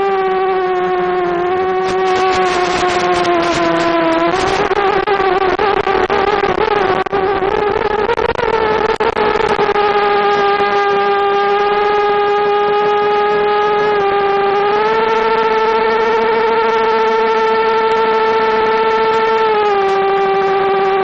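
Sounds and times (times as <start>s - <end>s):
quadcopter motors whining: 0.0s - 21.0s.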